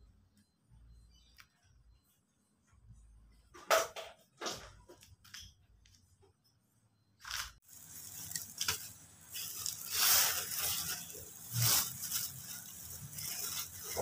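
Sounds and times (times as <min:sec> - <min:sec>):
plastic bag crinkling: 0:07.3 - 0:14.0.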